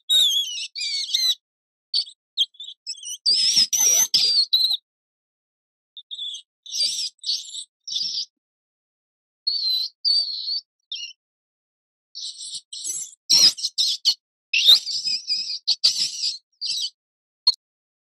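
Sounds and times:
rodent squeaking: 0.0s - 1.4s, 2.0s - 4.8s, 6.1s - 8.3s, 12.2s - 17.6s.

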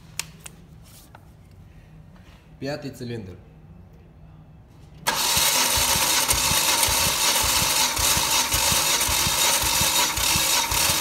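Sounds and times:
starter motor cranking engine: 5.0s - 11.0s.

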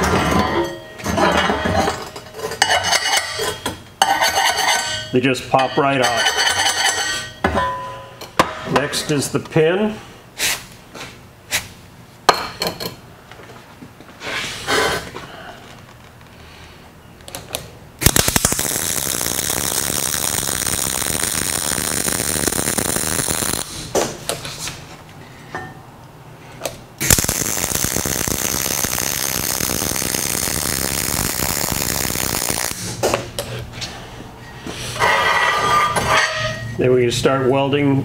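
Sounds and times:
welder arc crackling: 18.0s - 24.2s, 27.0s - 33.2s.

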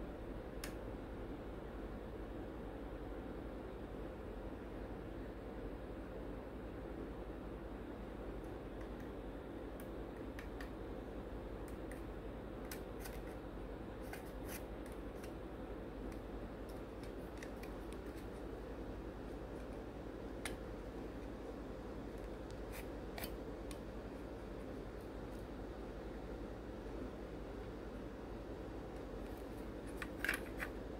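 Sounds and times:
background hum and hiss: 0.0s - 30.9s.

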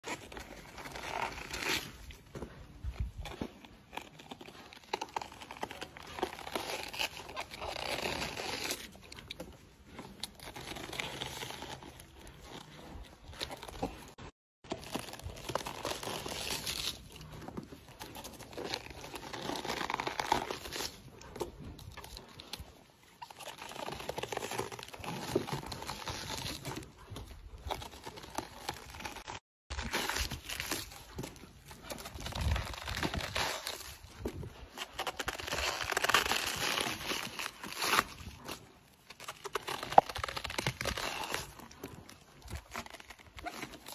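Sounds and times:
animal chewing crisp lettuce: 14.8s - 43.9s.

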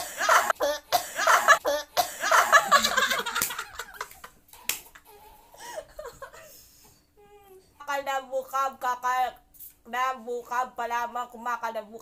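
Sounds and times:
people laughing: 0.0s - 0.6s, 1.2s - 1.6s, 2.2s - 6.5s.

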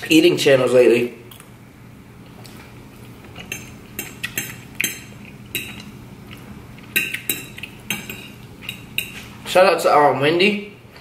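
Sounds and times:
fork clinking on plate: 3.4s - 5.9s, 6.8s - 9.3s.

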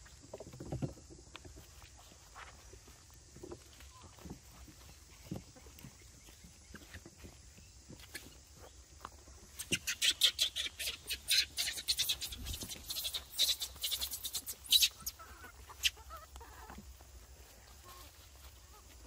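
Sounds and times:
footsteps crunching dry leaves: 1.4s - 9.6s, 12.1s - 19.0s.

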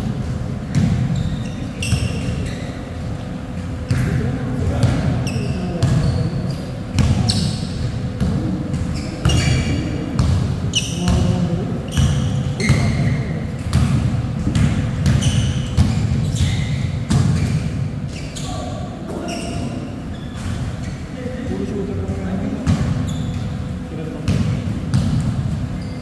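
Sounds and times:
basketball dribbling: 0.0s - 2.6s, 3.9s - 17.9s, 24.3s - 25.9s
sneakers squeaking: 0.0s - 26.0s.

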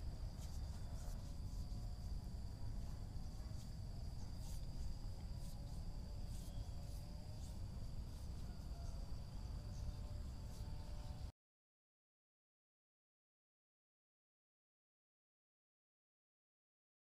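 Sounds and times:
insects droning: 0.0s - 11.3s.

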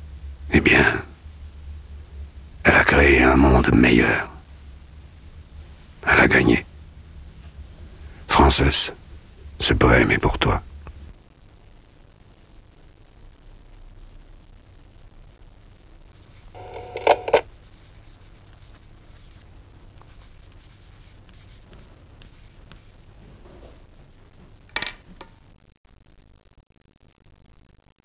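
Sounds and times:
tape hum and hiss: 0.0s - 28.0s
answering machine click: 16.6s - 17.4s.

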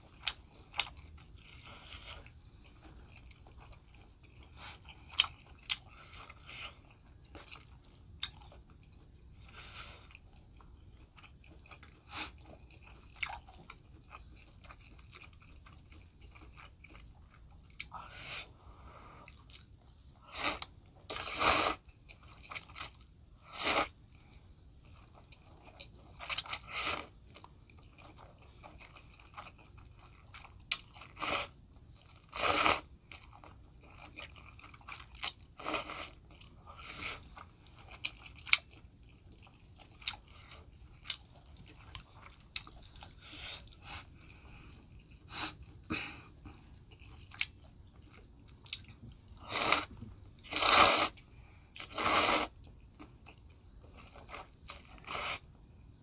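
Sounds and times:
wet chewing: 0.0s - 18.4s, 19.2s - 45.8s
person slurping noodles: 49.4s - 51.2s, 51.8s - 52.6s.

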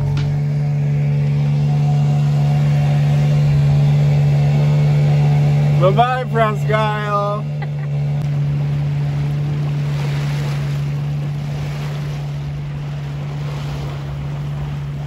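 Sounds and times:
boat engine humming: 0.0s - 15.0s
waves rushing: 0.0s - 15.0s.

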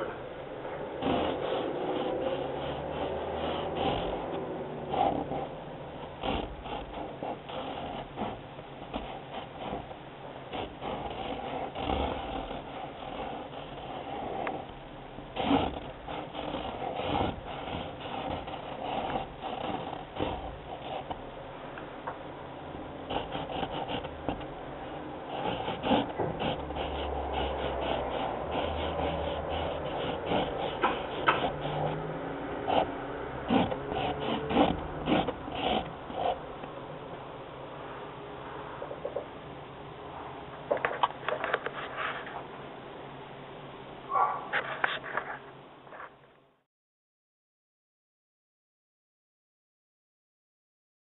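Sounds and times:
marker squeaking on paper: 0.9s - 21.5s, 22.6s - 36.8s.

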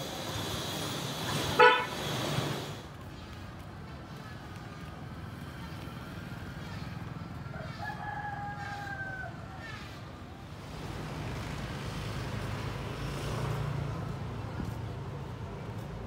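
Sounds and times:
low rumble of street traffic: 0.0s - 16.0s
rooster crowing: 7.5s - 9.7s.

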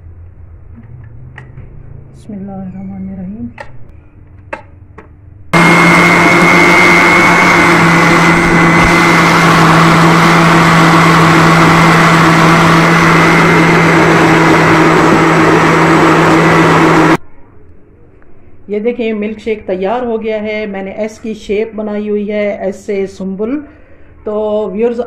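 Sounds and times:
blender motor whining: 5.6s - 17.2s.

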